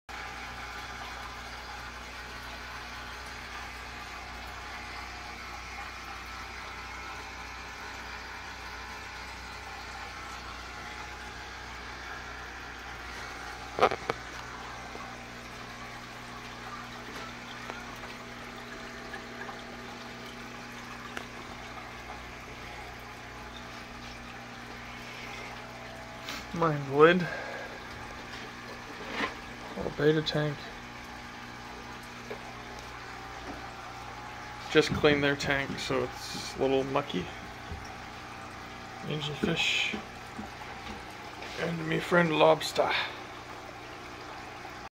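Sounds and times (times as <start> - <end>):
pump humming: 0.1 - 44.9
water trickling: 0.1 - 44.9.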